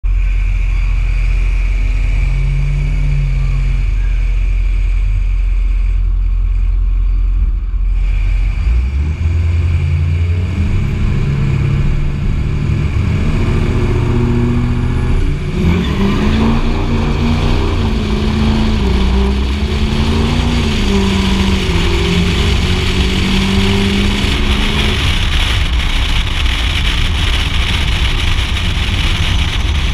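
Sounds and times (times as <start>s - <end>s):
diesel pickup engine revving: 0.0s - 29.9s
road noise: 0.0s - 29.9s
wind rush: 10.2s - 29.9s.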